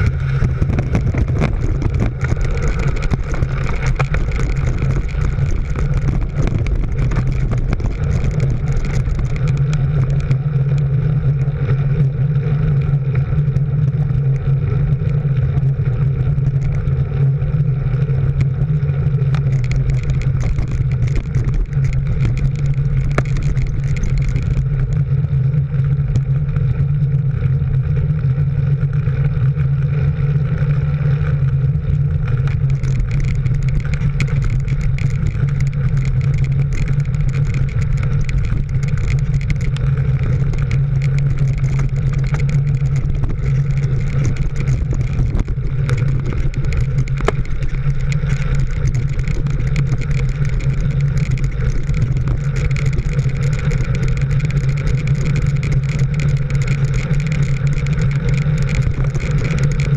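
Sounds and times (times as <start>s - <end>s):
road noise: 0.0s - 59.9s
vehicle engine droning: 0.0s - 59.9s
wind noise: 0.0s - 59.9s.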